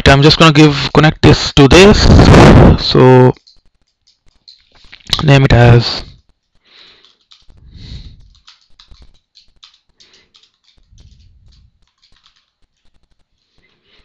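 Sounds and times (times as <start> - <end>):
keyboard typing: 3.2 - 5.4, 6.2 - 14.0.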